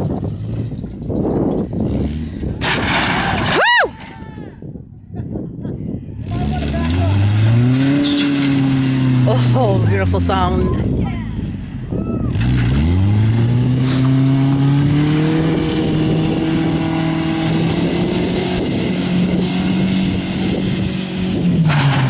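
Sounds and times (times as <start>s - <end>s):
pickup truck engine revving: 6.2s - 10.4s, 12.3s - 22.0s.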